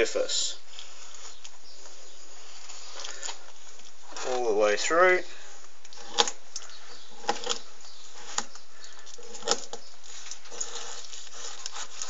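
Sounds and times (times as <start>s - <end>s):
knife scraping fish skin: 9.2s - 12.0s.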